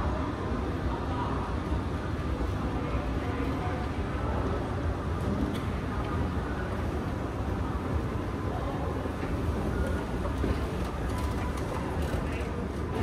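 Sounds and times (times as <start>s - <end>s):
indoor lobby hum: 0.0s - 13.0s.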